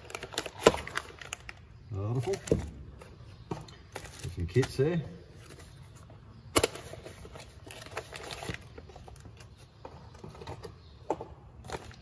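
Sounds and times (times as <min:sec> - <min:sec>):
plastic bags rustling: 0:00.0 - 0:02.5.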